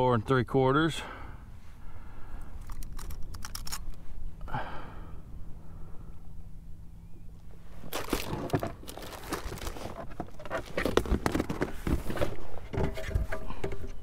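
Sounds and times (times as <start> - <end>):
rustling and crinkling handling noise: 7.4 - 14.0.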